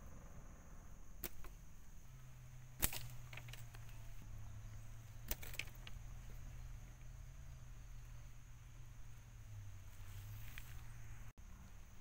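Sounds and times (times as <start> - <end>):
steady high whine: 0.0 - 5.2
sticks and twigs snapping: 1.2 - 1.6, 2.6 - 4.2, 5.0 - 6.3.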